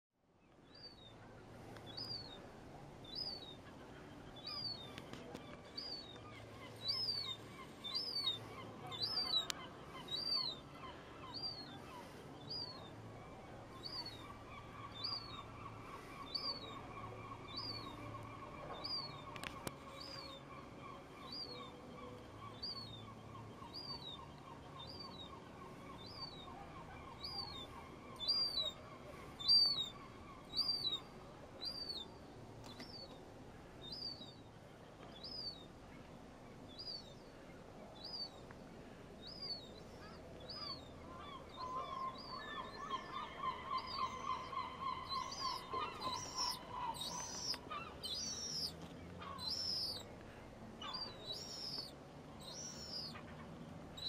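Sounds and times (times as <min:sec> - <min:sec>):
gull begging calls: 0:40.0 - 0:50.0, 0:50.8 - 0:53.2.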